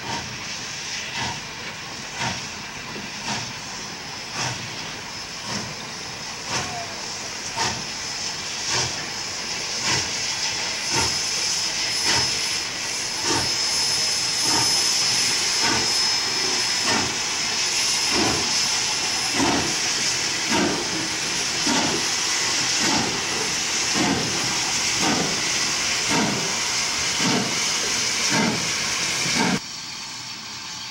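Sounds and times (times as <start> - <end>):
steam hissing: 0.0 - 30.9
steam locomotive exhaust chuffing: 0.0 - 30.9.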